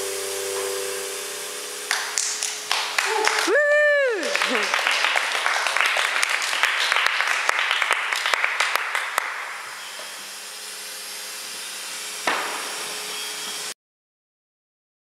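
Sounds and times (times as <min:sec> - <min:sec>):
audience applauding: 0:01.9 - 0:09.8
sharp knock: 0:12.2 - 0:12.7.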